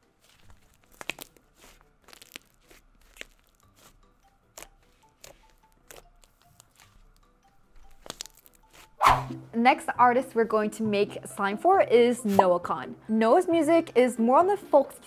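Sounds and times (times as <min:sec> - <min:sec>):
slime crackling and popping: 0:00.2 - 0:08.9.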